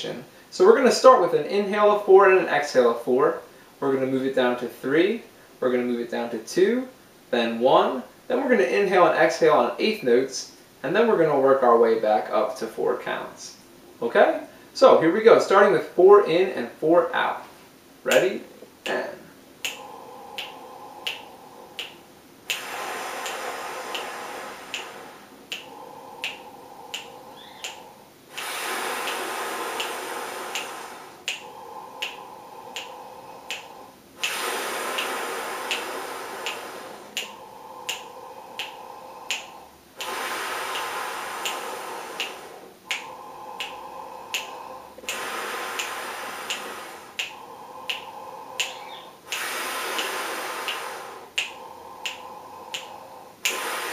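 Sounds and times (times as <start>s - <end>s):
finger snaps: 18.1s - 53.9s
man breathing deeply: 18.5s - 53.9s.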